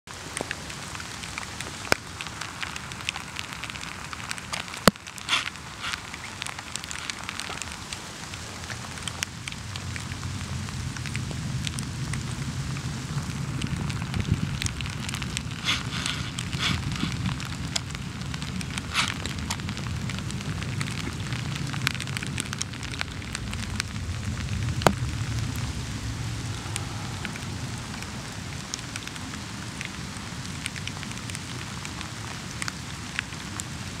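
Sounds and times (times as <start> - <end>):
rain falling on grass: 0.1 - 34.0
raindrops ticking: 0.1 - 34.0
low rumble: 9.2 - 17.8, 19.8 - 31.4.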